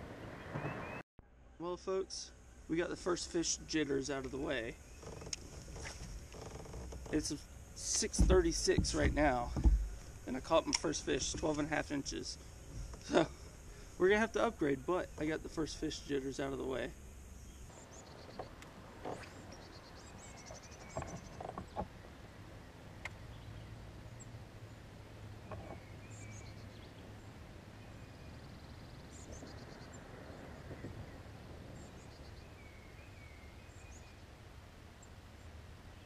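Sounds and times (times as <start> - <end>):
songbirds chirping faintly: 0.0 - 36.0
low steady hum: 1.2 - 36.0
sharp clicks and knocks: 5.0 - 11.8.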